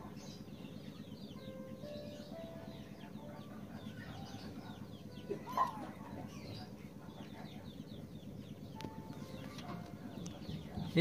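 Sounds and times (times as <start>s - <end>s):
birds chirping falling notes: 0.0s - 11.0s.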